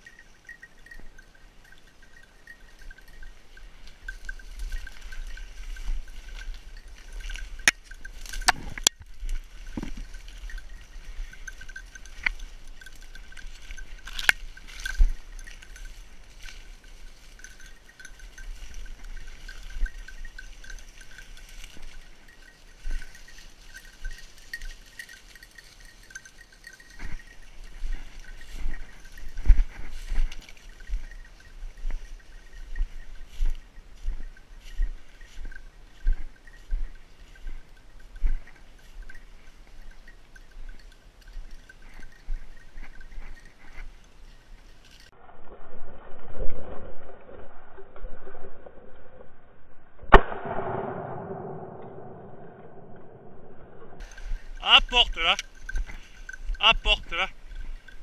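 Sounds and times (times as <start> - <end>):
dog bell ringing: 0.0 - 45.2, 54.0 - 58.0
sharp cracks: 50.1 - 52.8.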